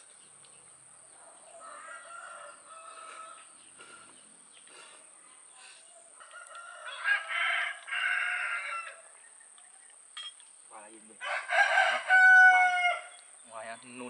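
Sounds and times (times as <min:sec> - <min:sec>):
rooster crowing: 0:01.4 - 0:03.6, 0:06.1 - 0:09.2, 0:11.2 - 0:13.2.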